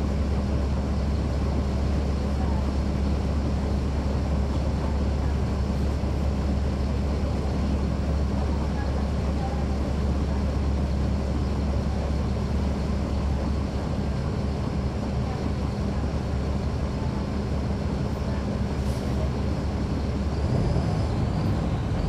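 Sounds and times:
diesel bus engine idling: 0.0 - 22.0.

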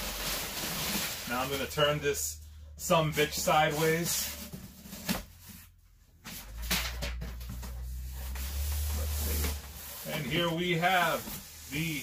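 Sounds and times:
cardboard scraping and rubbing: 7.5 - 12.0.

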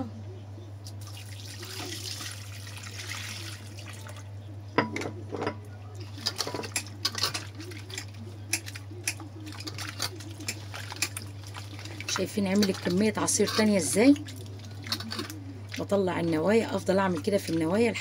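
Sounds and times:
water pouring into a bowl: 1.0 - 4.3, 9.4 - 16.0.

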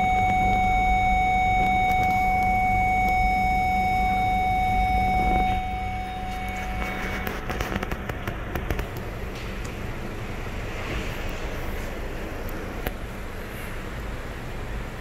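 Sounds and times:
parking sensor warning tone: 0.0 - 7.7
car engine idling: 0.0 - 15.0.

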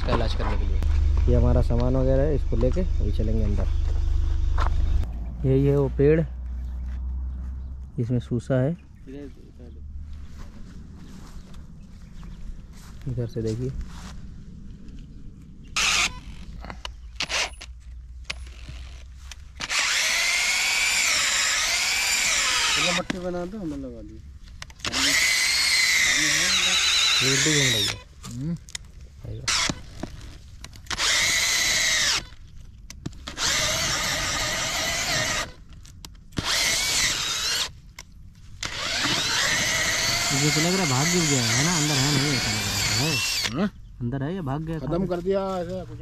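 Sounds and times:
power drill boring into wood: 15.8 - 16.5, 17.2 - 17.7, 18.3 - 23.4, 24.7 - 28.1, 29.5 - 29.8, 30.9 - 32.4, 33.2 - 35.6, 36.3 - 37.8, 38.6 - 43.6
scraping rustles: 27.8 - 31.4.

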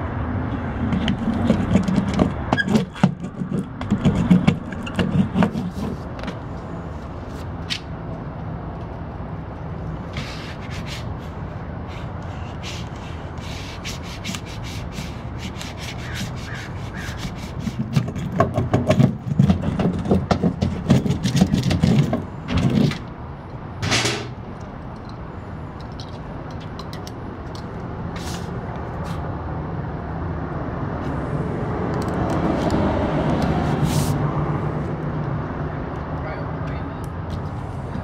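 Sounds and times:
short scrape: 10.1 - 11.1, 28.2 - 29.2, 33.6 - 34.2.

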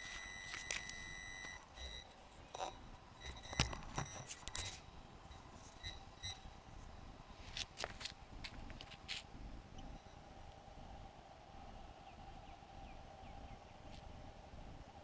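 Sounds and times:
electronic beeping: 0.0 - 4.7, 5.3 - 6.5.

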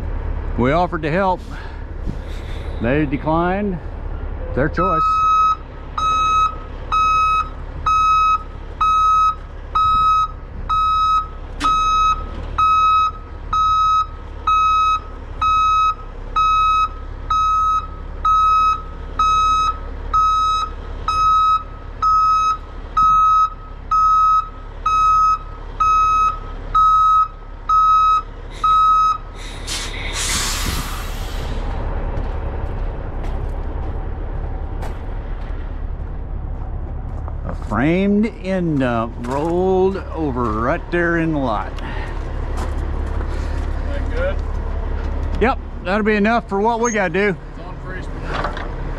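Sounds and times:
diesel engine running: 0.0 - 48.9
air brakes hissing: 1.4 - 2.8, 28.5 - 31.8
truck backup alarm beeping: 2.8 - 29.6, 45.8 - 47.4.

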